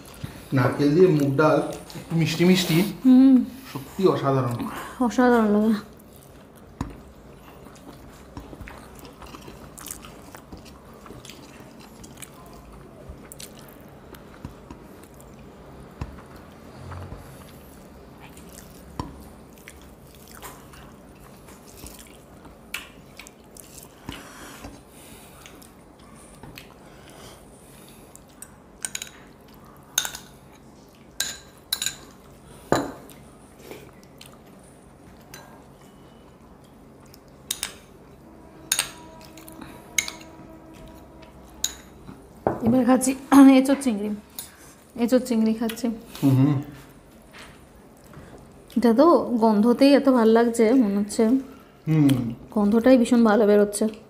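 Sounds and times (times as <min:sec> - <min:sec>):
quiet chewing: 0:05.9 - 0:31.2, 0:32.1 - 0:38.2
spoon and bowls clinking: 0:38.7 - 0:42.7.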